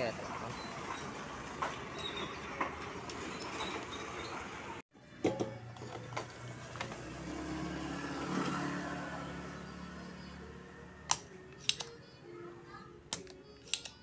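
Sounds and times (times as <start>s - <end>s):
sharp click: 11.1s - 12.0s.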